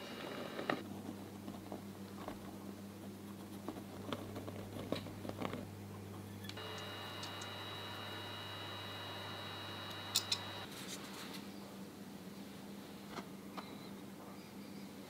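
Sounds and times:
low electrical hum: 0.0s - 15.0s
flour sifting ticks: 6.5s - 10.7s
high-pitched whine: 6.6s - 10.7s.

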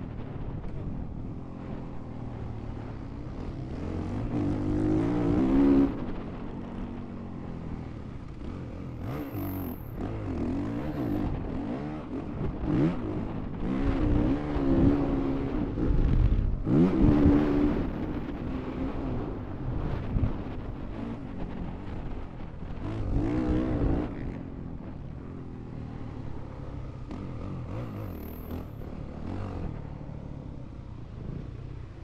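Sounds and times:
motorcycle engine revving: 2.7s - 32.0s.

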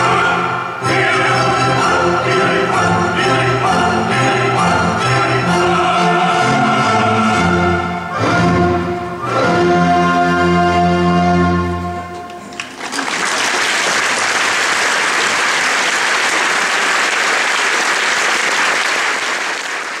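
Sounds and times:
opera singers and orchestra chord: 0.0s - 12.5s
audience applause: 12.4s - 20.0s.

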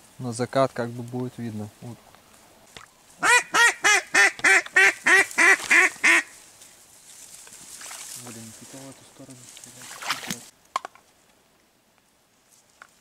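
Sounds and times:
duck quacking: 3.2s - 6.3s.

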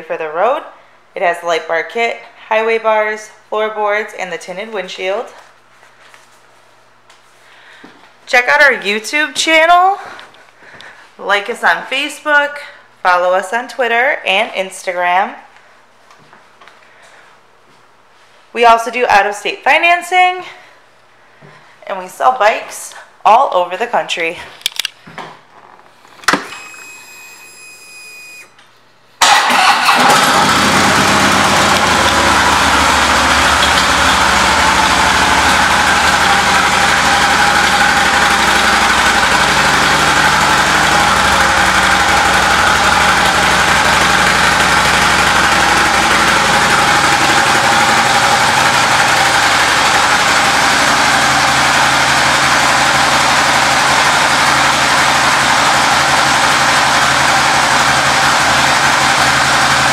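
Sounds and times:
motorcycle engine cranking and idling: 29.2s - 59.9s.

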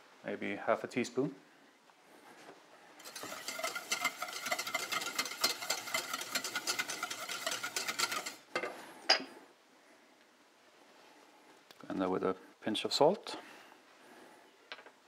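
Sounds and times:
whisk clicking in metal bowl: 3.0s - 8.5s.

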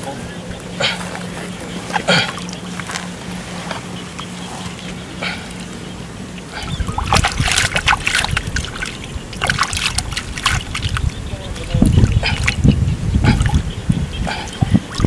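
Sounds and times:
steady low hum: 0.0s - 15.0s
splashing in muddy water: 6.5s - 13.7s.

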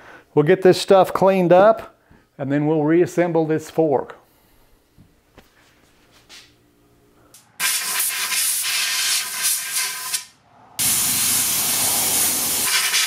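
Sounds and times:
air blow gun hissing: 7.6s - 13.0s.

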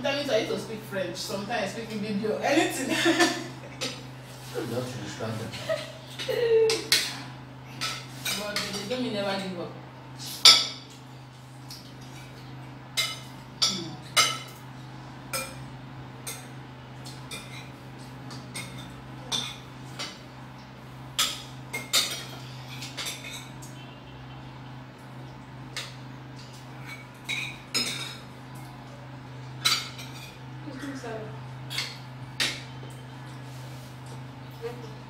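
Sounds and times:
steady low hum: 0.0s - 35.0s
spoons clinking on plates: 6.1s - 9.0s, 10.4s - 14.7s, 15.3s - 20.3s, 21.2s - 23.8s, 25.7s - 28.7s, 29.4s - 30.5s, 31.6s - 34.2s.

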